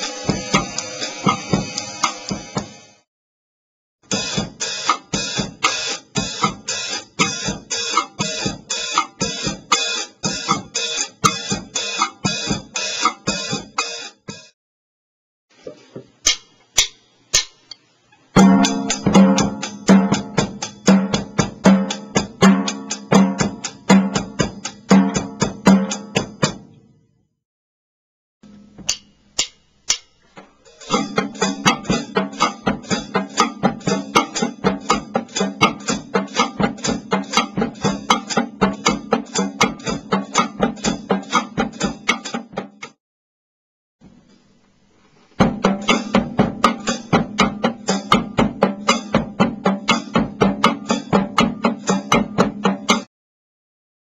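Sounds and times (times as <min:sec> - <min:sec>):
drum kit bossa nova beat: 0:00.0 - 0:03.0, 0:04.0 - 0:14.6, 0:16.2 - 0:17.6, 0:18.4 - 0:26.7, 0:28.8 - 0:43.0, 0:45.4 - 0:53.1
single drum stick clicks: 0:16.2 - 0:17.8, 0:28.8 - 0:30.2.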